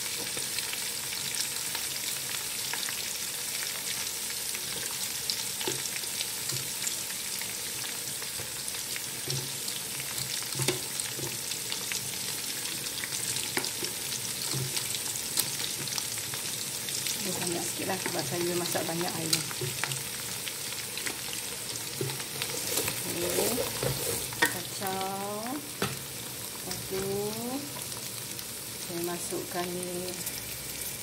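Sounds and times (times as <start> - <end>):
food sizzling in hot oil: 0.0 - 31.0
oil crackling and popping: 4.6 - 28.6.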